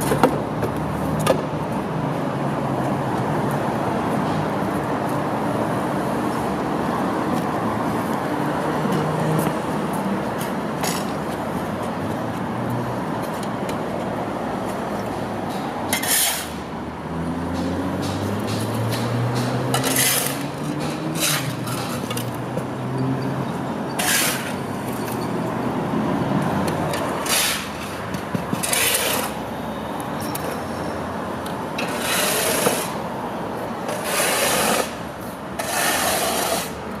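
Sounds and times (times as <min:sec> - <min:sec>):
shovels scraping on concrete: 0:10.4 - 0:11.4, 0:14.6 - 0:16.7, 0:17.5 - 0:22.5, 0:23.9 - 0:25.4, 0:26.8 - 0:29.5, 0:31.8 - 0:33.1, 0:33.8 - 0:36.9.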